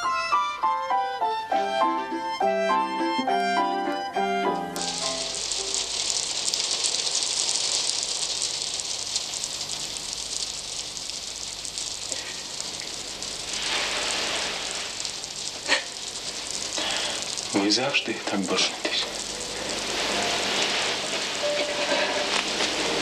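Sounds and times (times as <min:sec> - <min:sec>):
steady even hiss: 0:04.8 - 0:23.0.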